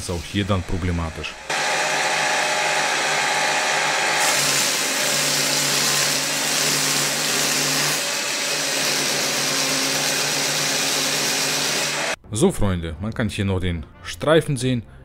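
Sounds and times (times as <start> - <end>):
drill press running: 1.4 - 12.2
wood sanding hiss: 1.5 - 12.2.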